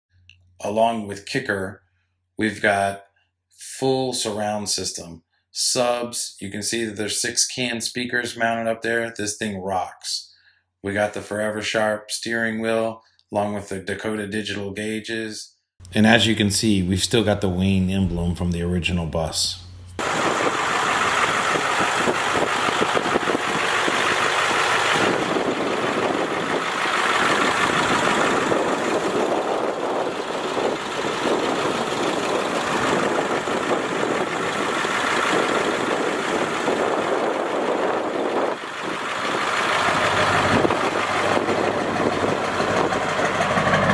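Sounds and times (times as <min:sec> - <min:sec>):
bus diesel engine driving by: 0:19.8 - 0:43.9.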